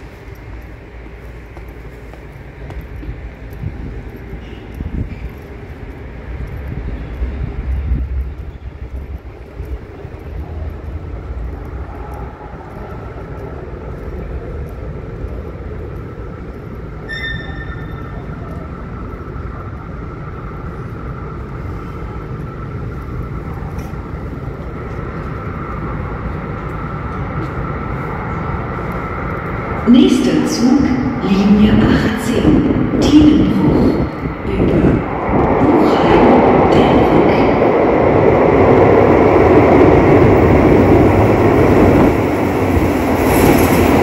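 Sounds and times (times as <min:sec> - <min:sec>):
light-rail train rumbling: 0:00.0 - 0:44.0
high squeal: 0:17.0 - 0:18.4.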